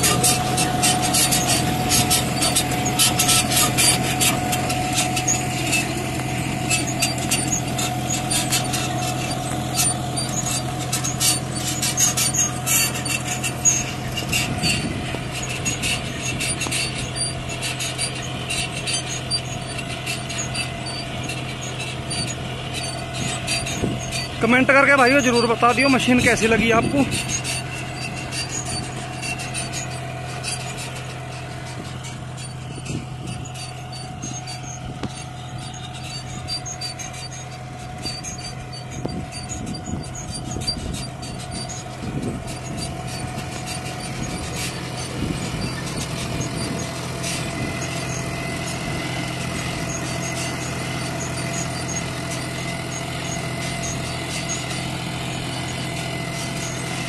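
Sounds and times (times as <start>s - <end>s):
rapid clicking of chain mechanism: 0.0s - 55.5s
tractor diesel engine under load: 0.0s - 57.0s.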